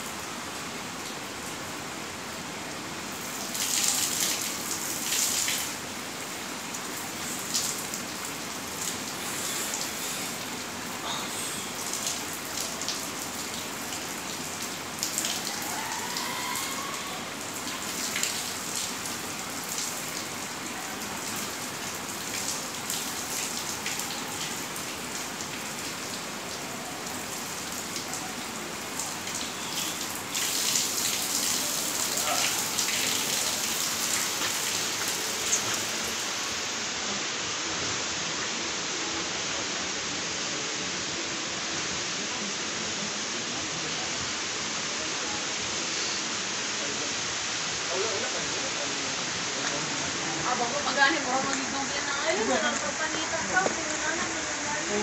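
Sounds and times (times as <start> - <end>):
rushing hiss: 0.0 - 23.2, 24.1 - 43.4
shower water splashing: 3.1 - 36.6.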